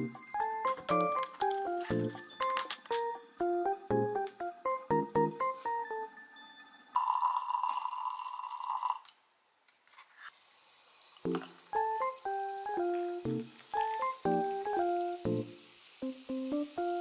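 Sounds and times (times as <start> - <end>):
piano music: 0.0 - 7.6, 11.3 - 17.0
wine pouring into a glass: 6.9 - 9.1.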